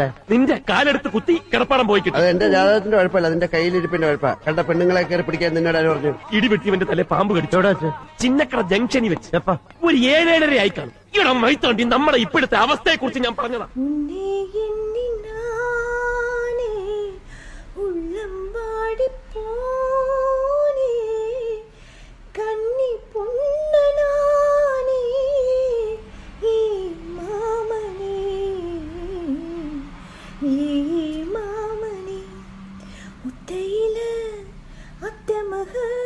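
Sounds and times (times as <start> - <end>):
woman singing slow melody: 13.7 - 36.0.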